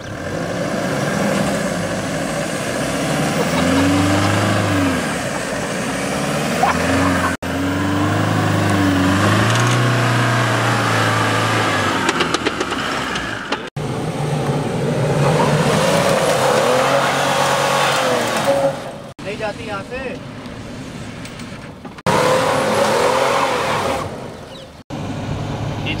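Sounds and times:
engine revving: 0:00.0 - 0:19.2, 0:22.0 - 0:26.0
wheels spinning in sand: 0:00.0 - 0:19.8.

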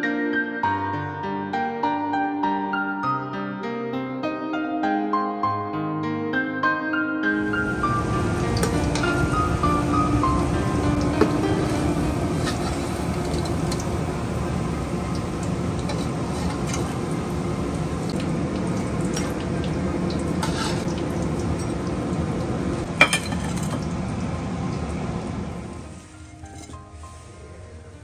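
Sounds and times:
deep-frying sizzle: 0:07.4 - 0:28.0
crockery clink: 0:23.0 - 0:23.8.

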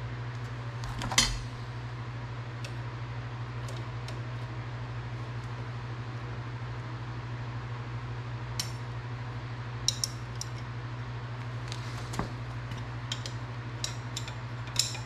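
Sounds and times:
steady low hum: 0:00.0 - 0:15.0
wrench clinking on metal: 0:13.1 - 0:15.0.

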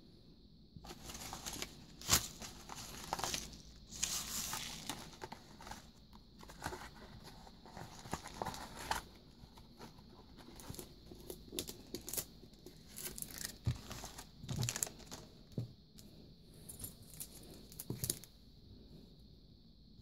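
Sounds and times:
plastic sleeves crinkling: 0:00.9 - 0:15.3.

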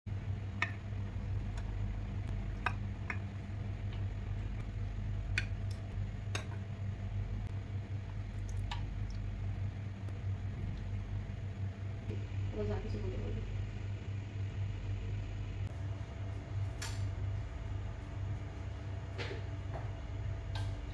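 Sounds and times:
steady low hum: 0:00.1 - 0:20.9
squishy liquid sounds: 0:07.9 - 0:09.7.

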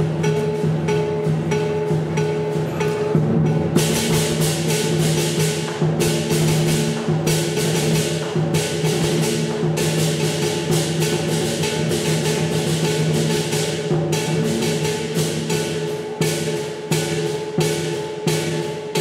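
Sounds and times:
cymbals clashing: 0:00.0 - 0:19.0
drum beating: 0:00.0 - 0:19.0
gong ringing: 0:00.2 - 0:06.7.

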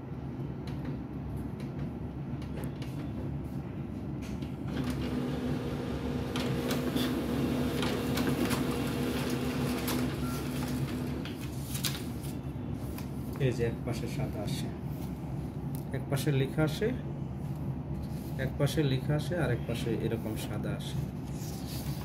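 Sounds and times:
laser printer printing: 0:04.7 - 0:11.4
paper rustle: 0:06.5 - 0:13.4, 0:21.2 - 0:22.0.

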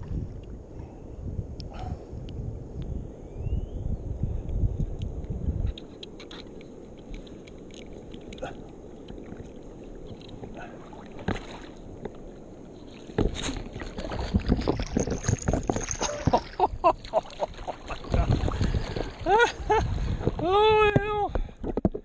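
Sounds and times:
water noise: 0:00.0 - 0:03.4, 0:04.1 - 0:22.0
soft wind: 0:00.0 - 0:22.0
fish splashing in shallow water: 0:06.9 - 0:20.4.

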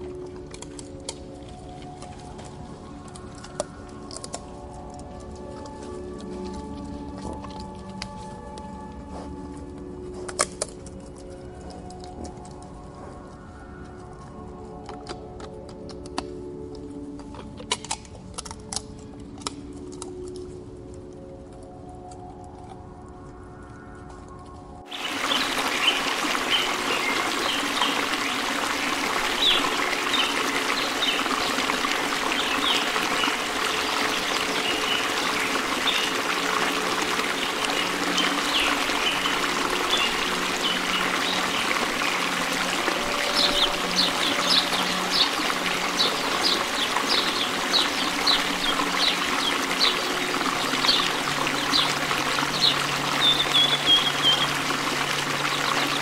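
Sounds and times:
water trickling: 0:24.7 - 0:56.0.

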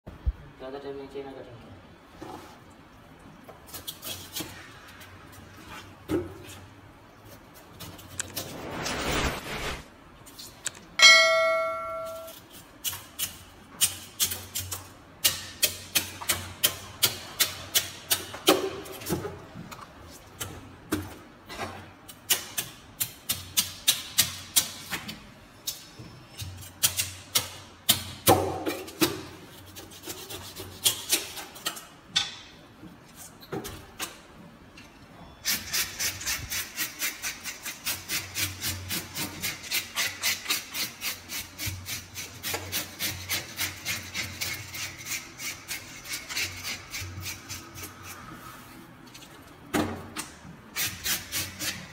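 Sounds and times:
short chime: 0:11.0 - 0:12.4.

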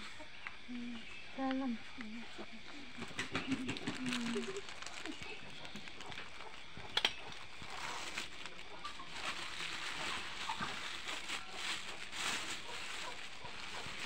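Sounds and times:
plastic bags crinkling: 0:03.0 - 0:14.0.

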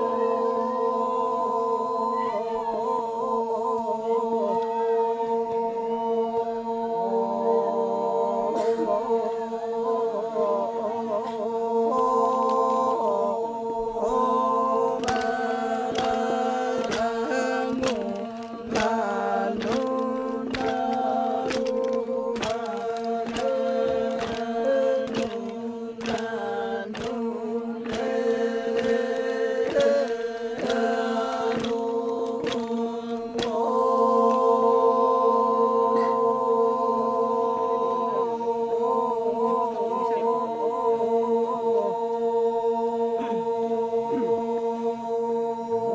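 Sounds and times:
men chanting: 0:00.0 - 0:45.9
sharp clicks: 0:15.0 - 0:26.4.

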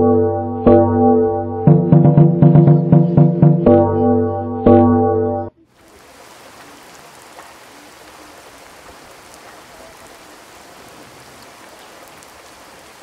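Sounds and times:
music: 0:00.0 - 0:05.6.

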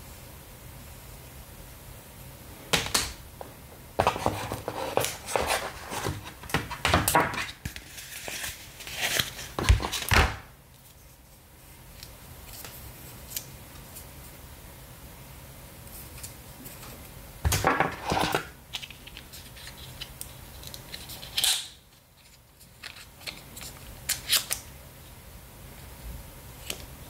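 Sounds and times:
cardboard box rustling and scraping: 0:04.0 - 0:10.0.

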